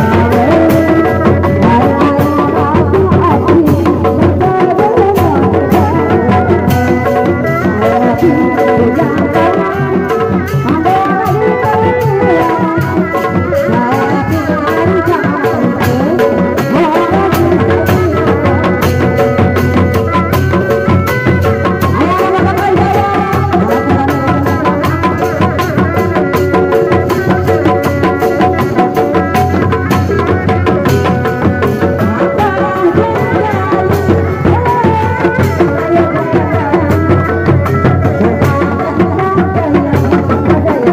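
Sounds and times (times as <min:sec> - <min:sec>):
large drums beating: 0:00.0 - 0:40.9.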